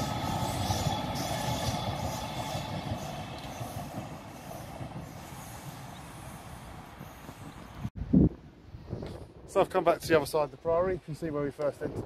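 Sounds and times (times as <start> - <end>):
electric train running: 0.0 - 7.9.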